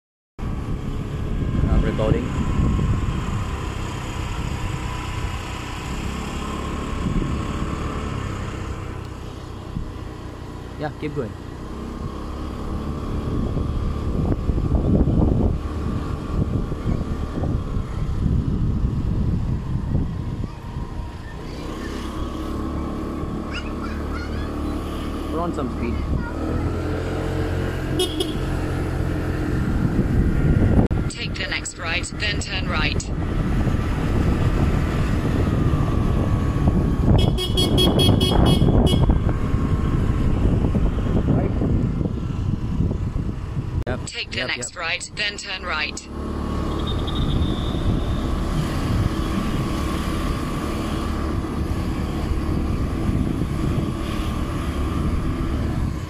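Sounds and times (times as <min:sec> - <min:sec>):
wind buffeting microphone: 0:00.4 - 0:05.3, 0:12.7 - 0:21.4, 0:28.9 - 0:31.1, 0:33.1 - 0:43.9, 0:51.2 - 0:56.0
motorbike engine hum: 0:00.4 - 0:56.0
horn short toots: 0:28.0 - 0:28.5, 0:37.2 - 0:39.2.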